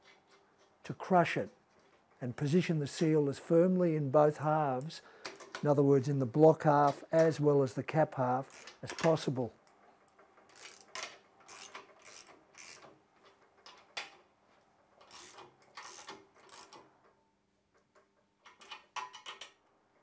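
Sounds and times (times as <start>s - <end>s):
ratchet wrench clicking: 8.5s - 8.8s, 10.5s - 12.9s, 15.0s - 16.8s.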